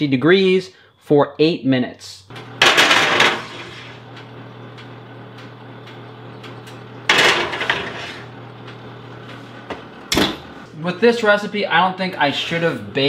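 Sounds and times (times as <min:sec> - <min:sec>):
steady low hum: 0:02.1 - 0:13.0
glass dishes scraping on oven rack: 0:07.1 - 0:08.4.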